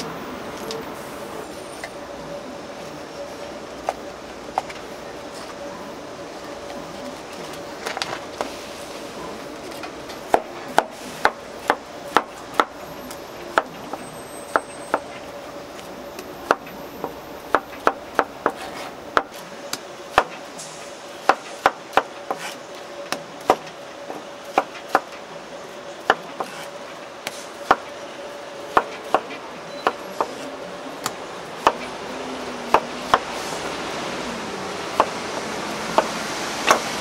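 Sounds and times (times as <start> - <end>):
steady background hum: 0.0 - 37.0.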